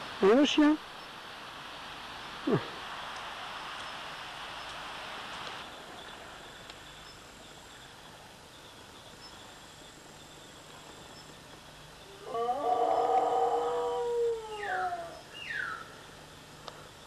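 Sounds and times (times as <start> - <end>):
faint background hiss: 0.0 - 17.0
animals howling: 12.0 - 15.9.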